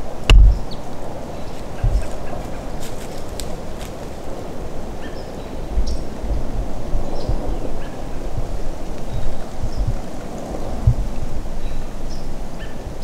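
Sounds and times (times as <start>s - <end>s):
wind on microphone: 0.0s - 13.0s
woods ambience: 0.0s - 13.0s
sharp knock with low thump: 0.3s - 0.7s.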